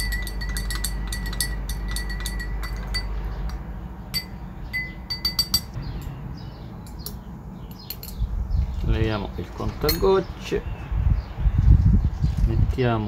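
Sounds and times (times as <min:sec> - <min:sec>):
faint steady ring: 0:00.0 - 0:05.8
spoon clinking against glass: 0:00.0 - 0:05.8.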